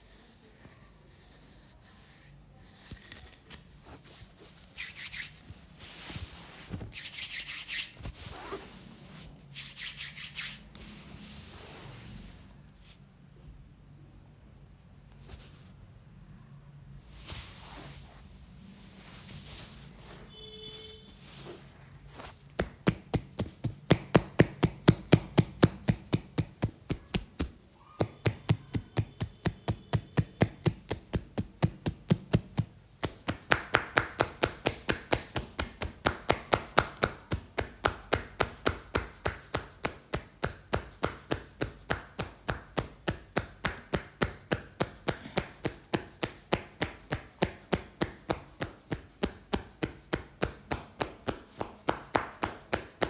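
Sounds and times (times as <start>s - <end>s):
hands tapping on head: 22.4s - 53.0s.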